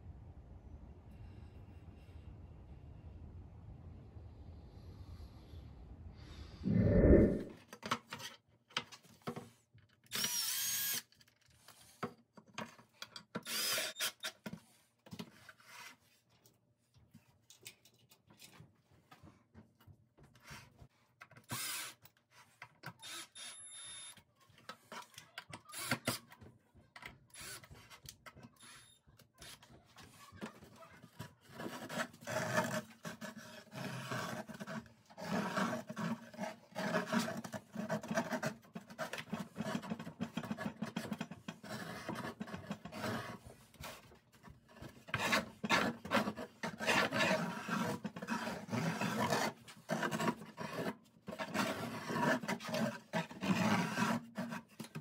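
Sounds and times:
cordless drill running: 0:10.1 - 0:11.0.

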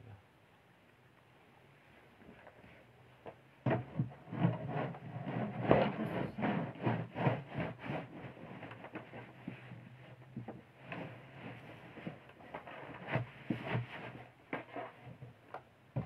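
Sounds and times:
fabric rustling and rubbing: 0:04.3 - 0:15.2.

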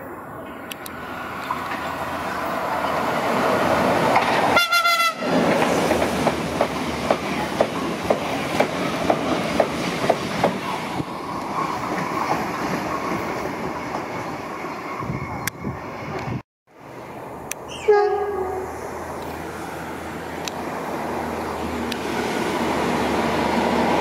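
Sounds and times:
train wheels rumbling and clacking: 0:01.4 - 0:15.6
train horn blast: 0:04.6 - 0:05.4, 0:17.7 - 0:18.8.

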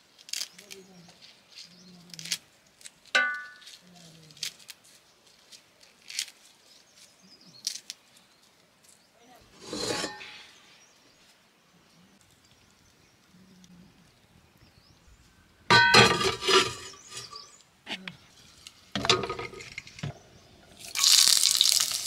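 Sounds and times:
rustling scrape: 0:09.5 - 0:10.6, 0:15.7 - 0:20.0
metal clink: 0:15.7 - 0:17.4.

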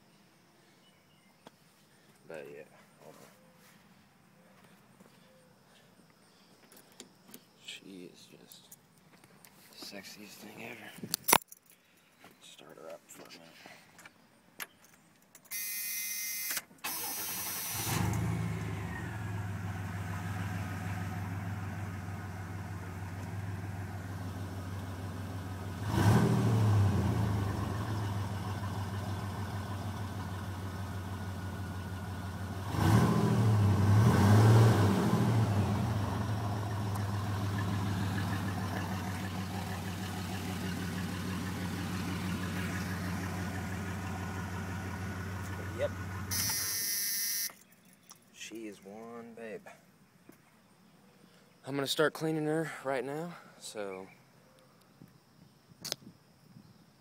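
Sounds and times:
engine starter cranking: 0:16.4 - 0:18.9, 0:45.3 - 0:47.7
pickup engine idling and revving: 0:17.7 - 0:46.5.

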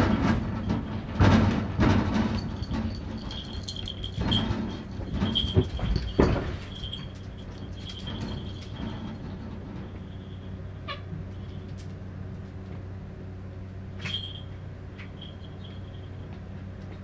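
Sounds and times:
steady low hum: 0:00.0 - 0:17.0
cat collar bells jingling: 0:02.3 - 0:09.4, 0:14.0 - 0:16.3.

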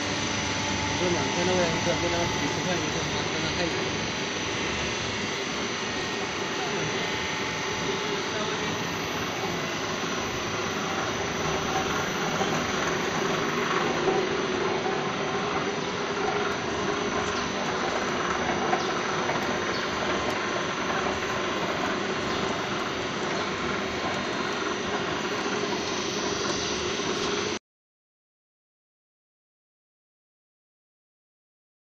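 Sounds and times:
machine high whine: 0:00.0 - 0:27.6
wire drawing machine drone: 0:00.0 - 0:27.6.

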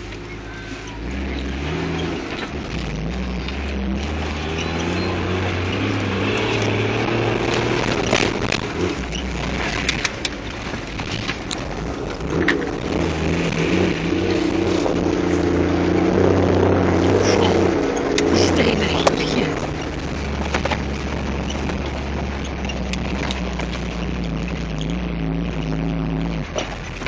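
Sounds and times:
car engine running: 0:00.0 - 0:27.0
car body knocks and rattles: 0:19.6 - 0:23.9.

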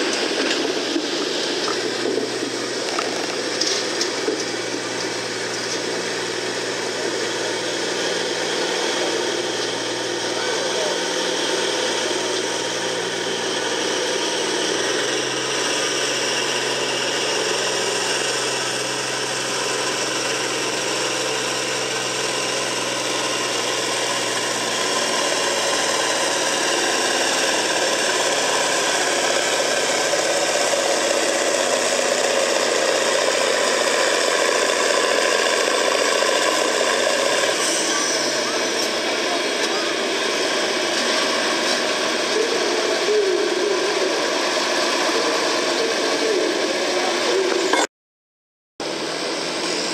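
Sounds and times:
tractor diesel engine under load: 0:00.0 - 0:47.9, 0:48.8 - 0:49.9.

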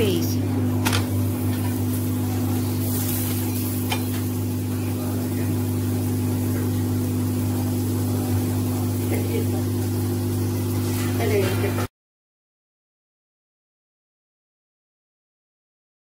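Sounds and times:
flatbread sizzling on griddle: 0:00.6 - 0:11.9.

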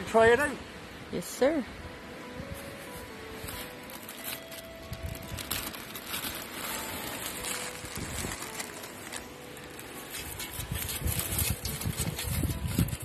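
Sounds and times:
wind buffeting microphone: 0:10.2 - 0:13.0.

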